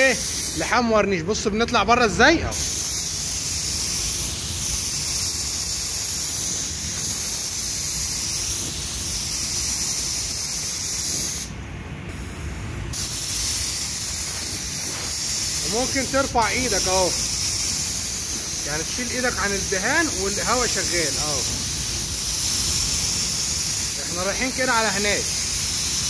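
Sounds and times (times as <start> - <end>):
spray gun hissing: 0.0 - 0.7, 2.5 - 26.0.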